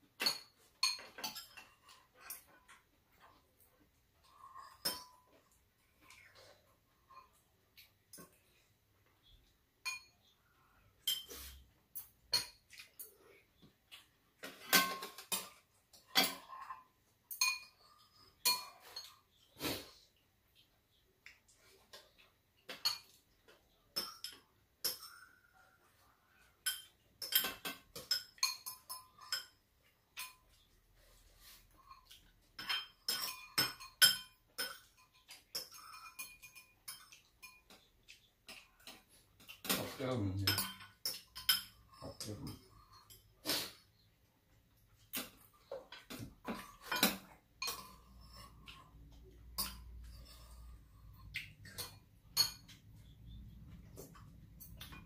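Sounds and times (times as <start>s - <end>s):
spoons and chopsticks clinking bowls: 0.0s - 3.6s, 4.2s - 8.6s, 9.2s - 13.2s, 13.9s - 19.5s, 23.9s - 25.8s, 26.5s - 43.8s, 45.1s - 55.0s.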